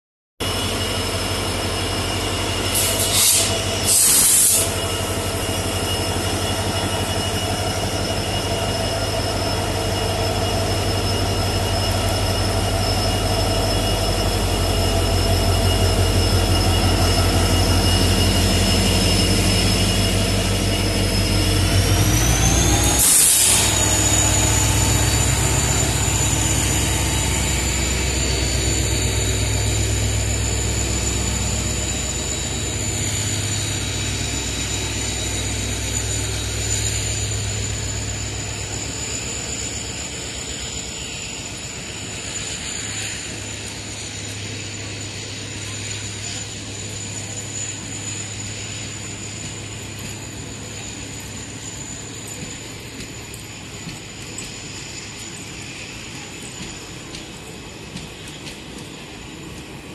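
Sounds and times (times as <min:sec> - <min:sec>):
diesel locomotive engine running: 0:00.4 - 0:59.9
turbocharger whine: 0:00.5 - 0:52.2
short hisses: 0:02.8 - 0:04.8.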